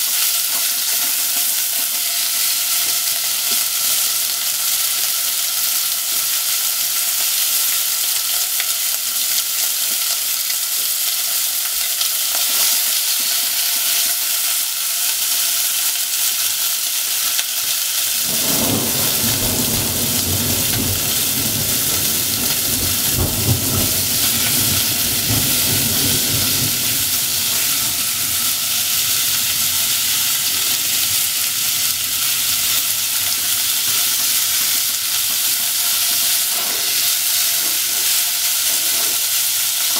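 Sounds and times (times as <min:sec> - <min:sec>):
pork sizzling in a pot: 0:00.0 - 0:39.9
low rumble: 0:20.6 - 0:32.6.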